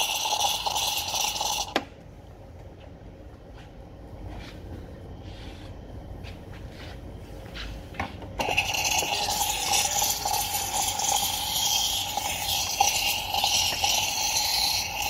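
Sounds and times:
steam wand hissing: 0.0 - 1.8, 8.4 - 15.0.

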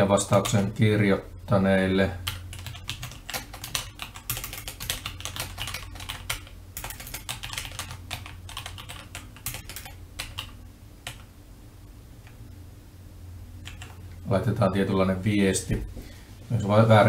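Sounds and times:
keyboard typing clicks: 2.3 - 11.3, 13.6 - 14.0.

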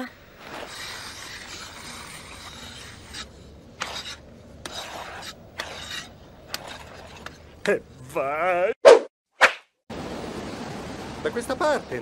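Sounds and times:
ice skate blades scraping ice: 0.4 - 7.5.

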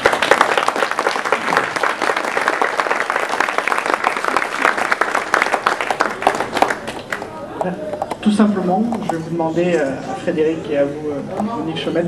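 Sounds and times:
people applauding: 0.0 - 7.4.

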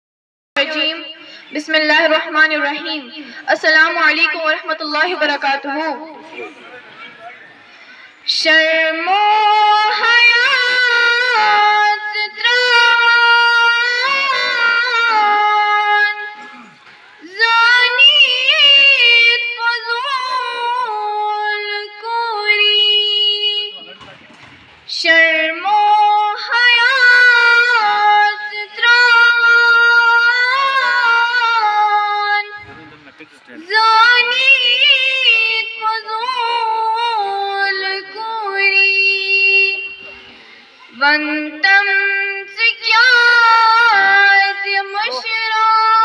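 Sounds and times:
girl singing unaccompanied: 8.4 - 16.3, 25.0 - 32.6, 33.6 - 39.9, 40.9 - 46.0.

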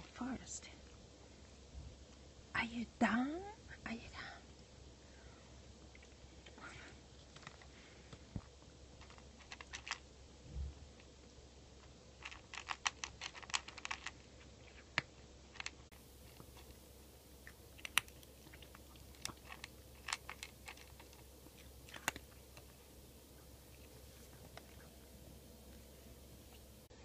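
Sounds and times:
cat crunching food: 7.2 - 10.2, 10.9 - 26.9.

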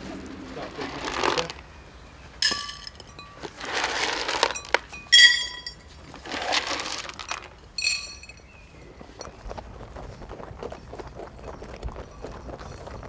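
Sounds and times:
dry food rattling into bowls: 0.6 - 1.7, 2.4 - 8.5
ceramic bowls clinking: 2.4 - 8.5.

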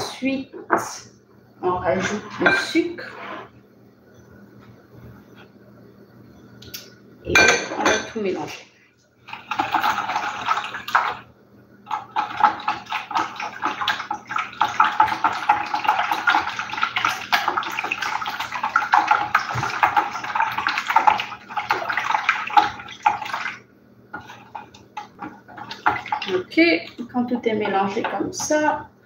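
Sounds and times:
whisk sloshing liquid in glass bowl: 9.3 - 11.2, 11.9 - 28.7.

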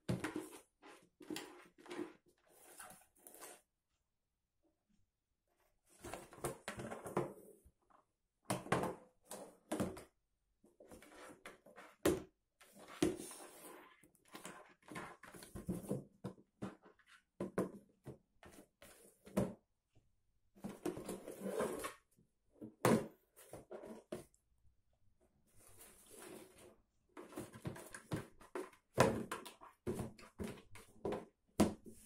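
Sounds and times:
cardboard box scraping on floor: 20.8 - 22.0.

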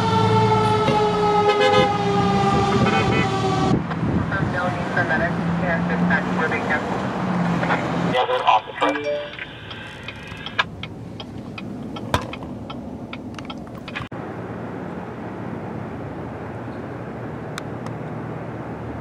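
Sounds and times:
car road and engine noise: 0.0 - 19.0
sharp clicks and knocks: 9.7 - 14.1.

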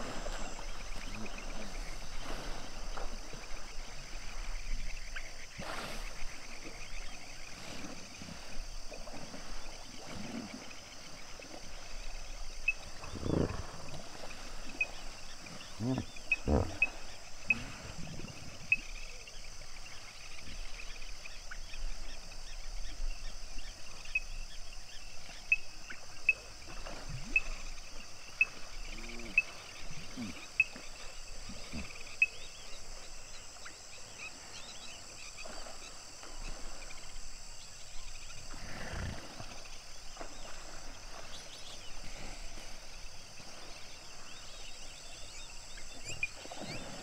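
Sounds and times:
hippos grunting and honking: 12.8 - 19.2, 38.5 - 39.6.

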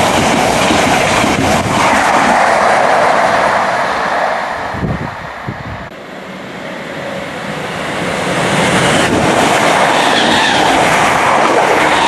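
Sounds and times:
rail clatter: 0.0 - 4.6, 7.9 - 12.0
train wheels roaring on rail: 0.0 - 12.0.

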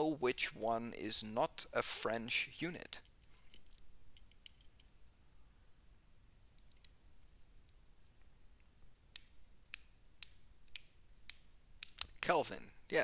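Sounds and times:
sharp clicks: 9.1 - 12.2.

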